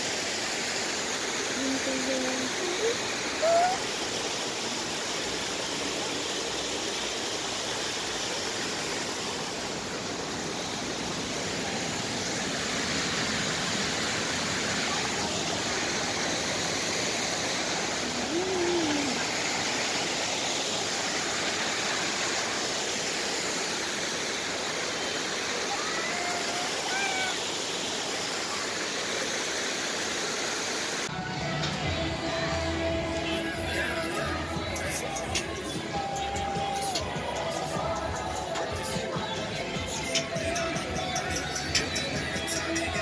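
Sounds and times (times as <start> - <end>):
flowing water rushing: 0.0 - 43.0
short voice-like call: 2.7 - 3.9, 18.1 - 19.2.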